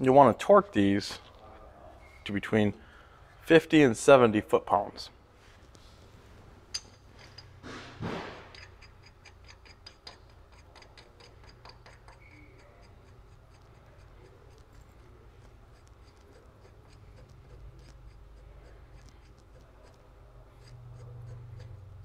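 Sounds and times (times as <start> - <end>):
ratchet wrench clicking: 8.5 - 20.0.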